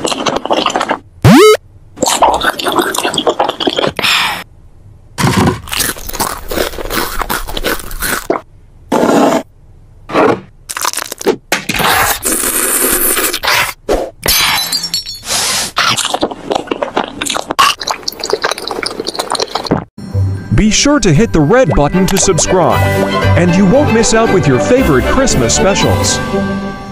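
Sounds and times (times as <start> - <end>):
cartoon crunching and chomping: 0.0 - 4.4, 5.2 - 9.4, 10.7 - 13.8, 15.7 - 19.9.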